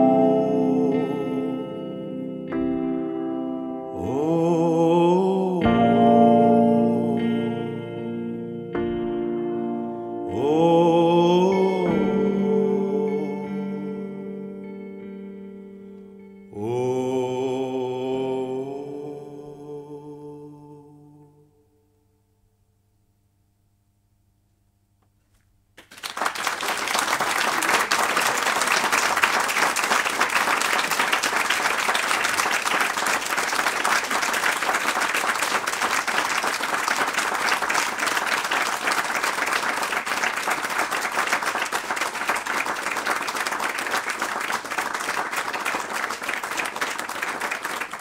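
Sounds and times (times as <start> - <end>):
audience applauding: 25.8 - 48.0.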